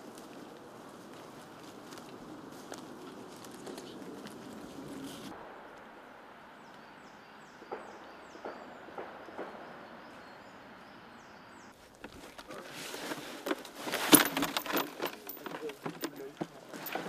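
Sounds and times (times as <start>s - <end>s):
footsteps on dry leaves: 0.0s - 5.3s
small bird singing: 6.6s - 11.8s.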